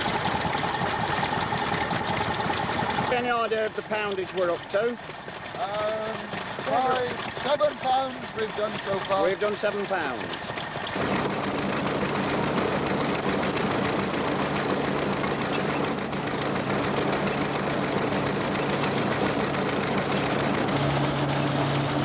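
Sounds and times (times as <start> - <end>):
mechanical clatter: 0.0 - 22.0
stationary engine hum: 0.0 - 22.0.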